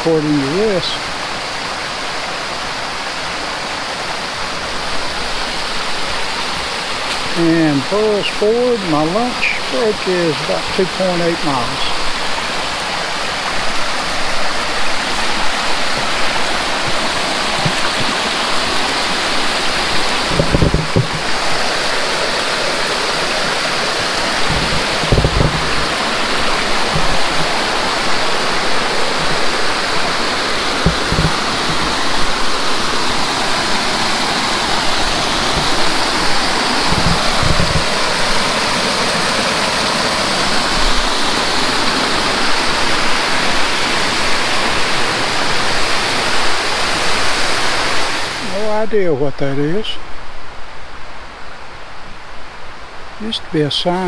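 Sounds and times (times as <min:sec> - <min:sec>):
river rapids rushing: 0:00.0 - 0:54.0
dull low thumps: 0:19.9 - 0:21.7, 0:24.2 - 0:29.5, 0:30.7 - 0:32.4.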